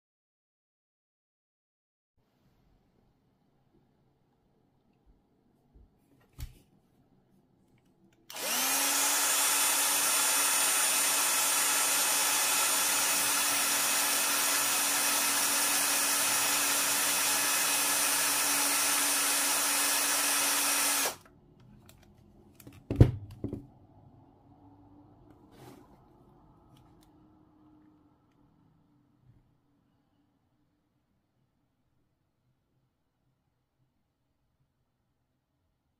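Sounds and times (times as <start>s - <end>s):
cordless drill whining: 8.3s - 21.3s.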